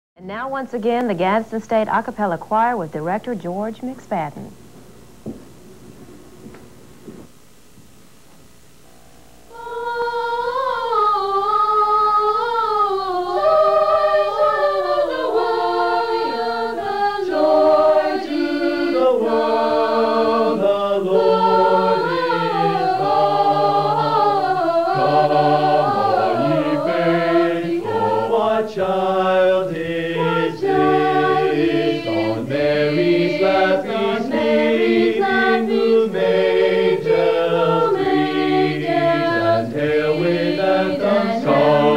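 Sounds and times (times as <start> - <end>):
mixed choir singing a cappella: 9.5 - 41.9.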